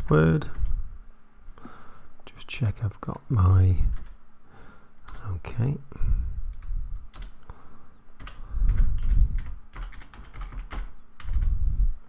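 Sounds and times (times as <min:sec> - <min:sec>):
computer keyboard keys tapping: 0:03.9 - 0:04.2, 0:05.0 - 0:05.3, 0:06.5 - 0:07.4, 0:08.2 - 0:11.5.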